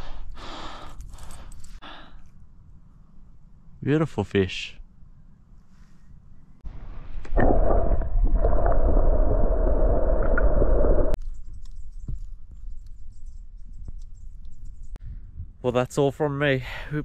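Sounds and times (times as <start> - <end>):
underwater rushing and gurgling: 6.7 - 11.2.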